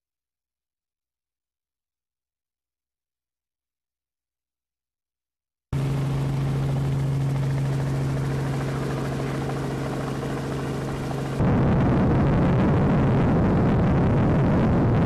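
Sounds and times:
helicopter engine and rotor drone: 5.8 - 15.0.

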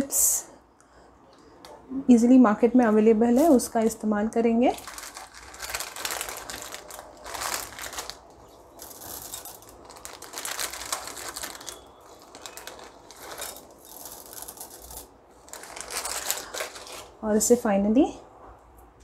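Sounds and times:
chocolate chips rustling: 4.7 - 17.2.

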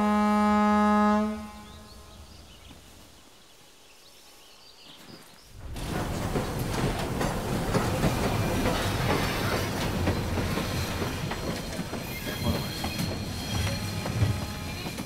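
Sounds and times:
train carriage rumbling: 5.4 - 15.0.

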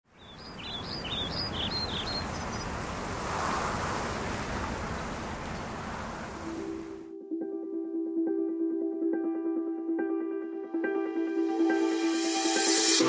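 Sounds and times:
small bird chirping: 0.1 - 3.2
wind on microphone: 0.6 - 7.0.

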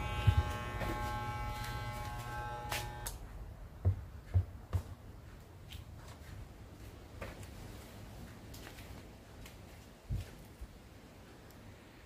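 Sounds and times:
electric hair clipper buzzing: 0.0 - 3.2.

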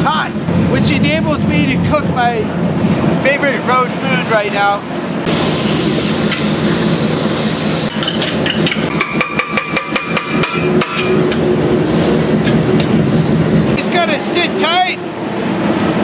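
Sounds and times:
freight train rumbling: 0.0 - 9.0, 9.8 - 16.0
rapid metallic clanks: 7.9 - 11.5.

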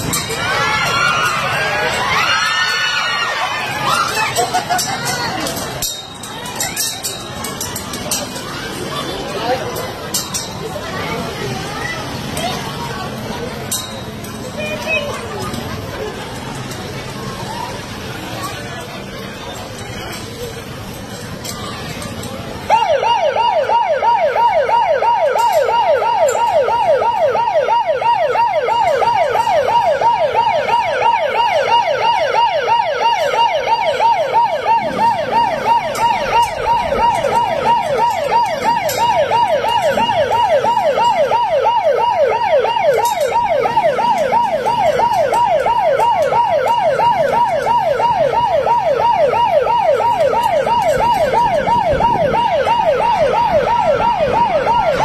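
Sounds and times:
electronic siren yelping: 22.7 - 55.0.

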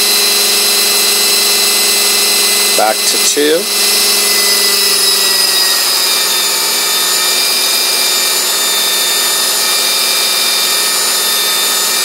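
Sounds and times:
motor whine: 0.0 - 12.0
rotor blades rushing: 0.0 - 12.0.

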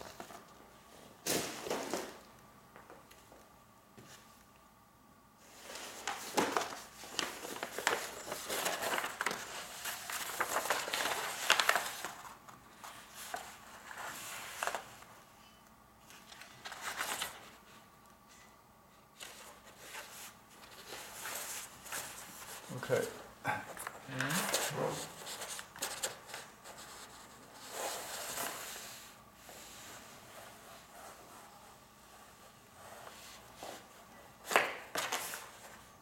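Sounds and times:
paper rustling and crinkling: 5.5 - 15.1, 16.0 - 17.8, 19.2 - 23.1, 23.8 - 36.0.

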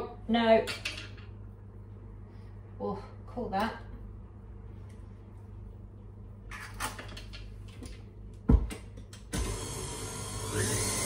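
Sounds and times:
stand mixer motor running: 9.4 - 11.0.

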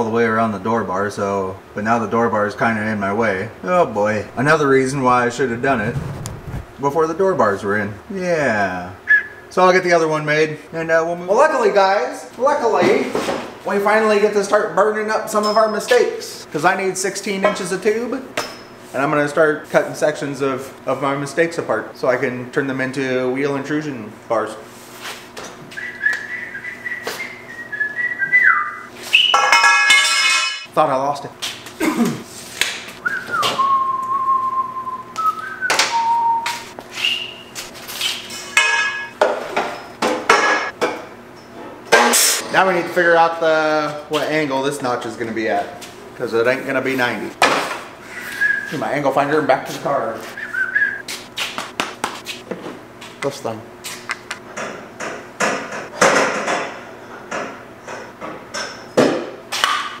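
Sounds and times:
man whistling: 9.1 - 9.5, 25.7 - 29.4, 33.0 - 37.5, 48.1 - 48.8, 50.2 - 51.1
steel tube knocks and clinks: 29.3 - 30.7, 38.6 - 39.2
ringing metal clatter: 29.4 - 30.7.

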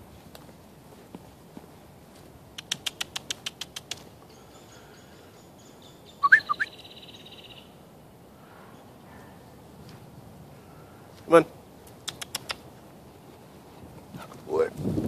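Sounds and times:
high bird trill: 2.6 - 7.8
loud rising bird chirps: 4.3 - 7.8
sharp bird notes: 4.3 - 7.8.

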